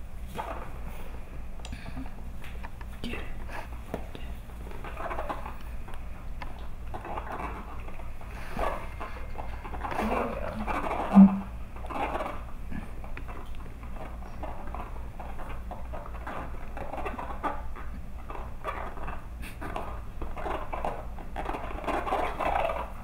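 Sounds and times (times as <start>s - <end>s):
puppy paws pattering on tile: 0.2s - 23.0s
rubber ball squeaking: 10.6s - 12.4s.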